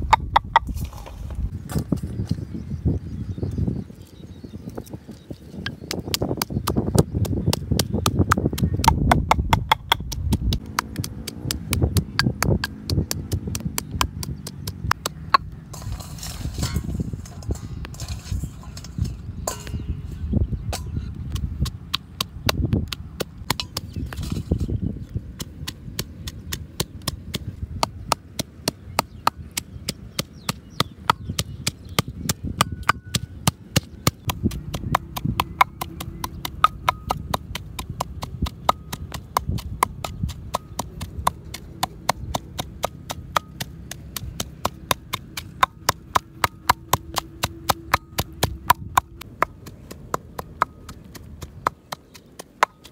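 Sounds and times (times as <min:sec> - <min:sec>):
rapid sharp knocking: 0:32.6 - 0:52.9.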